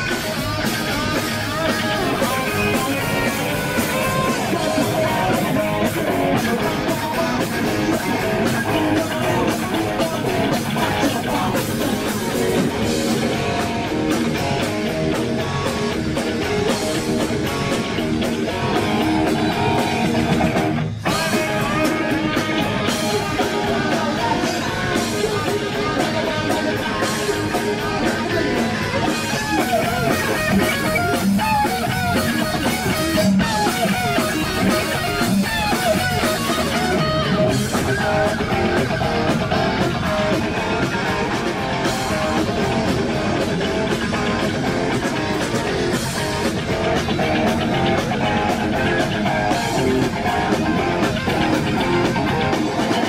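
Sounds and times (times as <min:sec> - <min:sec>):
hard rock band playing live: 0:00.0 - 0:53.0.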